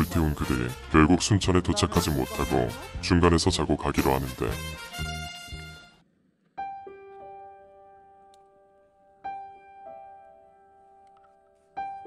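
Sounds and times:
soft piano notes ringing: 6.6 - 12.0.

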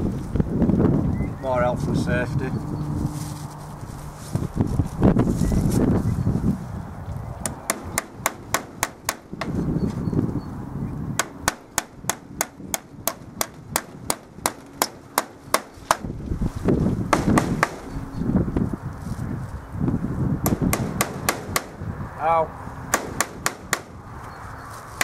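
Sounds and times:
hammer striking nails into wood: 7.4 - 9.6, 11.2 - 16.1, 17.1 - 17.9, 20.4 - 21.8, 22.9 - 23.9.

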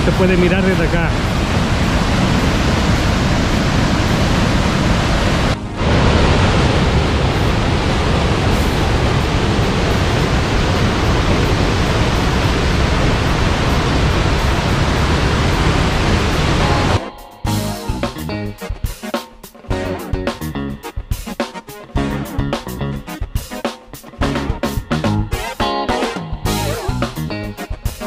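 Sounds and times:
waterfall roaring: 0.0 - 17.0.

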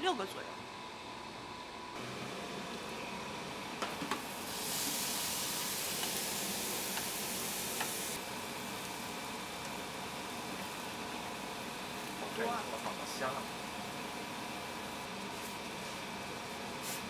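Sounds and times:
food sizzling in frying pan: 4.1 - 12.8.

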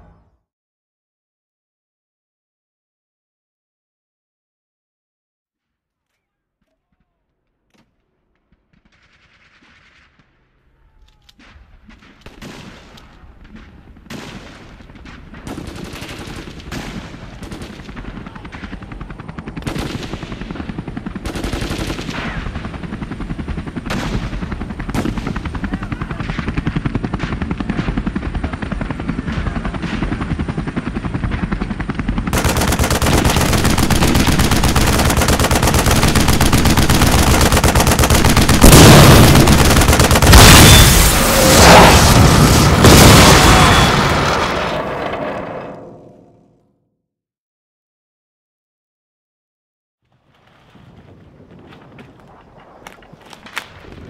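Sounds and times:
automatic gunfire: 32.3 - 41.8.

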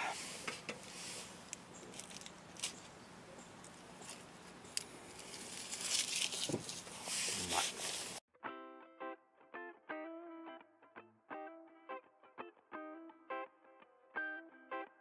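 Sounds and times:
camping gear rustling: 0.0 - 8.2.

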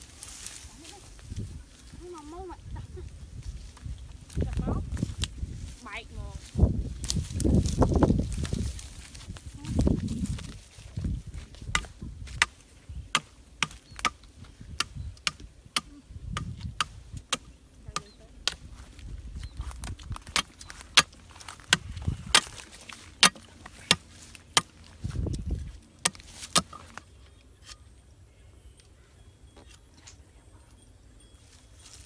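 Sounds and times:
machete chopping bamboo: 11.7 - 18.6, 20.2 - 22.6, 23.2 - 24.7, 26.0 - 26.9.

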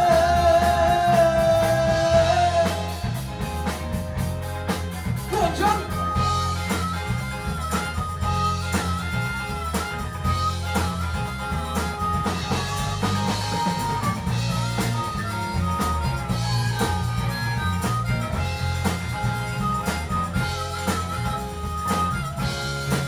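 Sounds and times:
drums: 0.0 - 23.0
guitars: 0.0 - 23.0
held lead melody line: 0.0 - 23.0.

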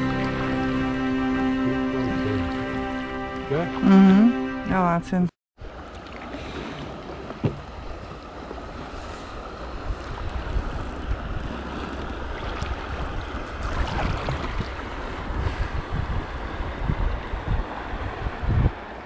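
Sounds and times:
river water lapping: 0.0 - 19.0
wind buffeting microphone: 6.8 - 19.0.

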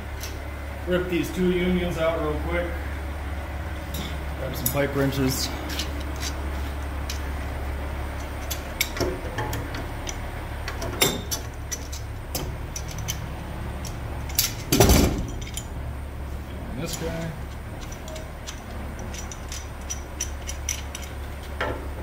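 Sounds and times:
steady low hum: 0.0 - 22.0
metal wrenches clanking: 3.9 - 6.4, 8.2 - 15.8, 16.8 - 21.8.

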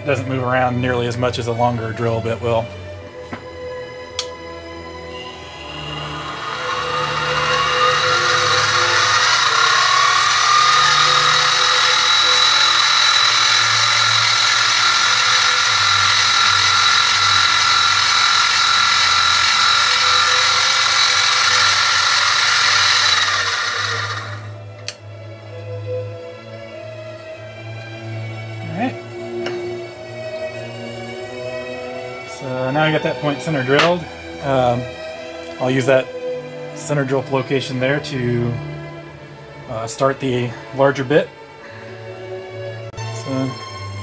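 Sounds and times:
mill spindle whine while drilling metal: 4.3 - 24.7.

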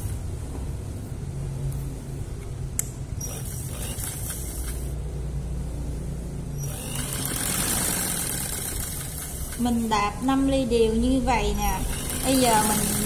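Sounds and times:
sharp click: 2.8 - 3.4
sewing machine motor humming: 3.2 - 4.9, 6.6 - 9.9, 11.6 - 13.0.

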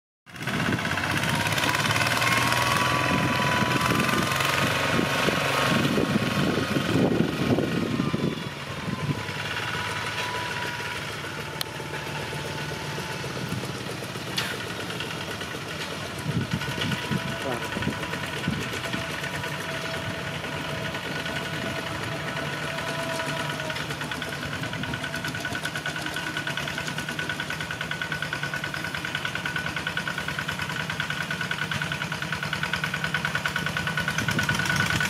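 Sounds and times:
diesel engine running steadily: 0.3 - 35.0
thin high tone: 7.3 - 15.7.

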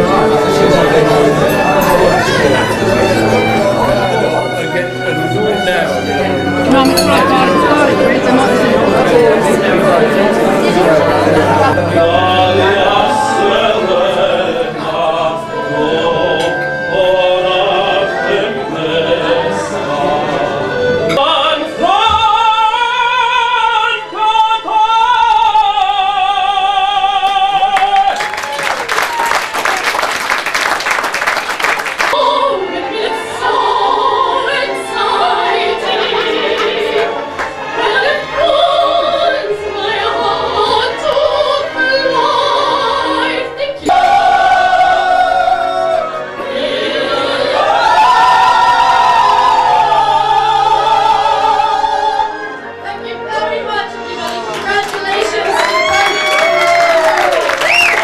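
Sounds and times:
backing music: 0.0 - 28.3, 32.0 - 58.0
man singing opera-style: 11.7 - 28.3.

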